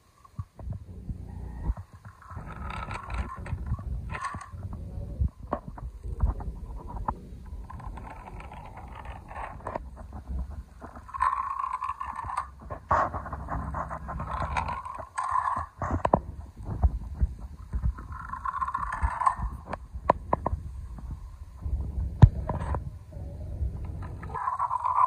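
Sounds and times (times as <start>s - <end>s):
toy car wheels rolling on concrete: 0.0s - 25.0s
small clicks: 7.0s - 21.2s.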